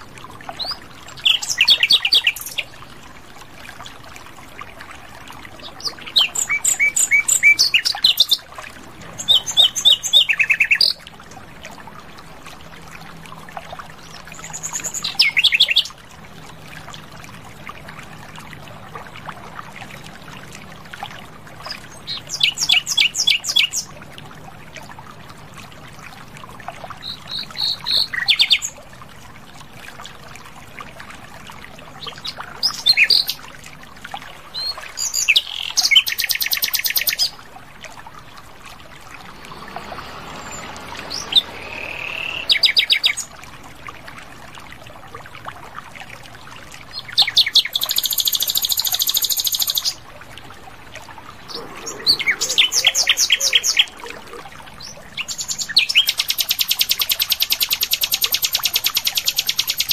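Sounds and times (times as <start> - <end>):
nightingale singing: 40.5 - 43.3.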